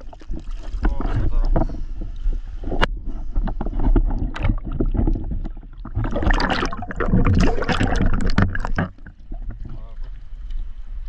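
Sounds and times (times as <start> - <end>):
water splashing in river: 3.7 - 10.2.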